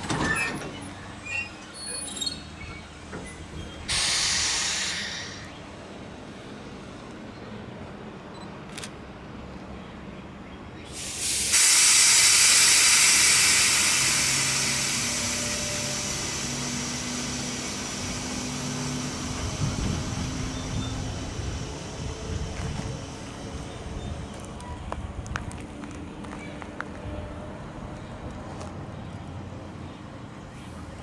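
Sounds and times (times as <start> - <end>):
steam locomotive venting steam: 3.9 - 5.6, 10.9 - 24.3.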